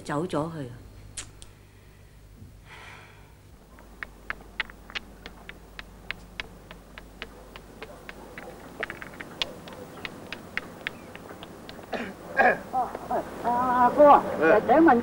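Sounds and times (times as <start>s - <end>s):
footsteps on a hard surface: 3.7s - 11.9s.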